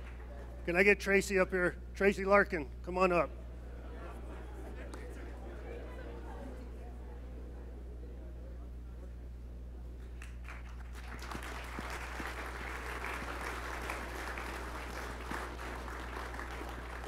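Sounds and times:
audience applauding: 0.0s - 0.5s, 10.2s - 17.0s
steady low hum: 0.0s - 17.0s.

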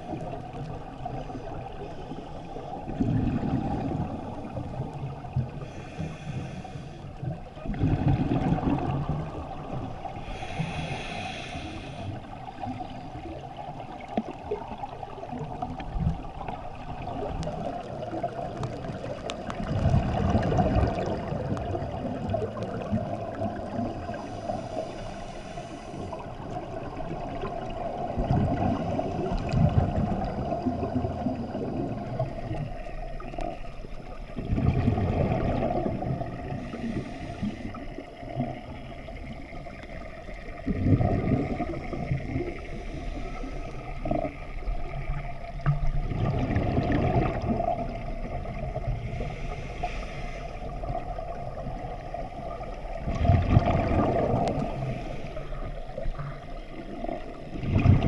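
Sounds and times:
watery background: 0.0s - 58.0s
diver exhaling bubbles: 2.9s - 4.7s, 7.6s - 11.8s, 14.2s - 25.0s, 34.3s - 39.2s, 40.6s - 44.4s, 45.6s - 49.7s, 50.7s - 55.2s, 56.0s - 58.0s
scuba regulator breathing: 5.5s - 7.2s, 10.1s - 12.5s, 24.0s - 27.0s, 36.4s - 38.2s, 41.5s - 44.4s, 48.9s - 51.0s, 54.4s - 56.2s.

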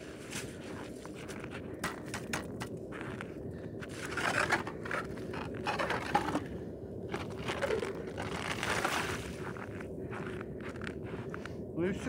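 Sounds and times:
ice auger crunching through ice: 3.8s - 6.5s, 7.1s - 9.6s.

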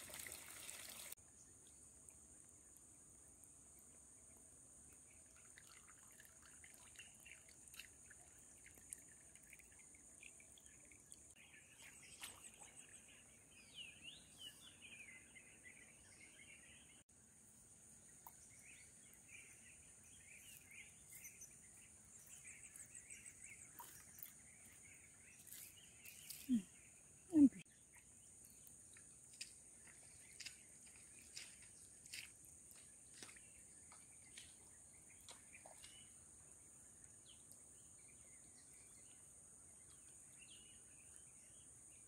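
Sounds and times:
birds chirping: 18.0s - 41.6s.

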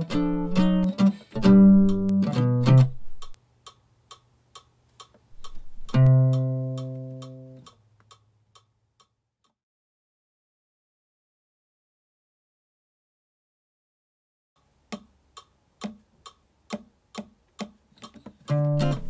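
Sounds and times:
jazz guitar: 0.0s - 3.4s, 5.4s - 7.6s, 18.2s - 19.0s
soft ticks keeping time: 0.0s - 9.6s, 14.6s - 19.0s.

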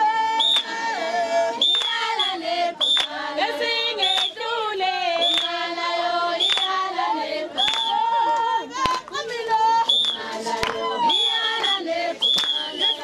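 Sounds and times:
women singing together: 0.0s - 13.0s
hand claps: 0.5s - 0.8s, 1.7s - 2.1s, 2.8s - 3.2s, 4.1s - 4.4s, 5.1s - 5.6s, 6.4s - 6.8s, 7.6s - 9.3s, 9.9s - 13.0s.

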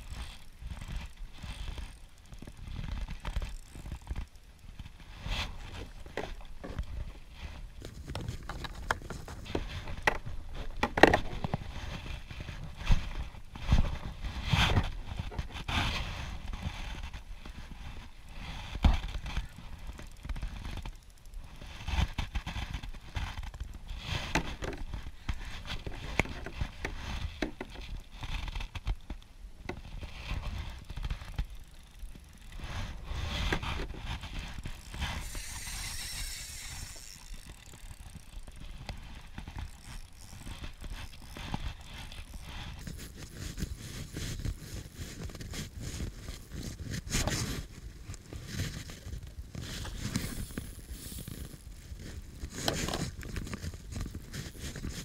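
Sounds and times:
fishing reel knocks and clicks: 34.6s - 42.6s.

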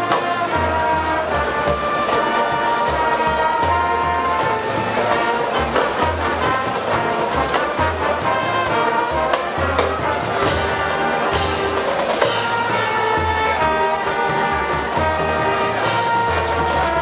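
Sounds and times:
brass band holding chords: 0.0s - 17.0s
marching percussion: 0.0s - 17.0s.

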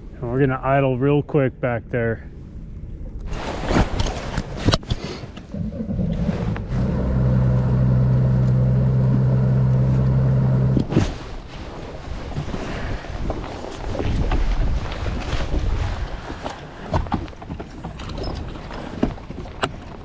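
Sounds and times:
wind: 0.0s - 20.0s
water noise: 2.7s - 20.0s
outboard motor idling: 5.5s - 10.9s.

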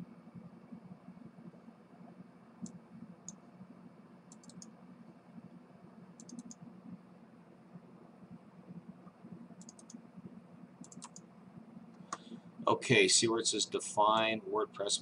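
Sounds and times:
faint low hum: 0.0s - 15.0s
computer mouse button clicking: 4.3s - 4.7s, 6.2s - 6.6s, 9.6s - 10.0s, 10.8s - 11.2s.

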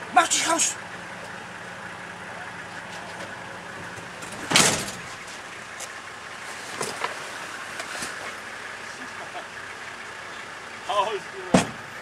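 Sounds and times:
loud bang on vehicle body: 11.5s - 11.9s.

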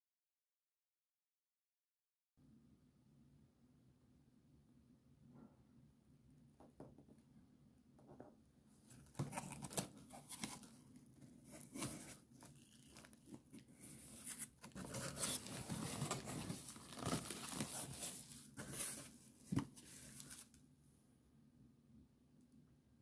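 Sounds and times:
cardboard scraping and rustling: 8.9s - 20.5s.

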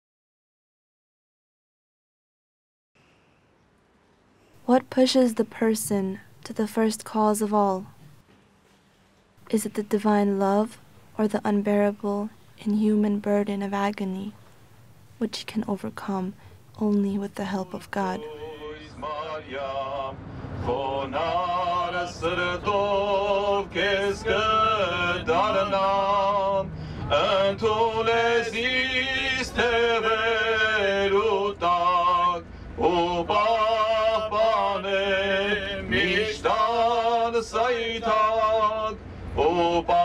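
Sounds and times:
man singing a chant: 18.1s - 40.0s.

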